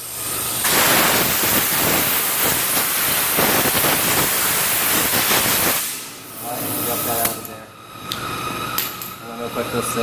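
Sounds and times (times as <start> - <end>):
compressed air blow gun hissing: 0.6 - 6.1.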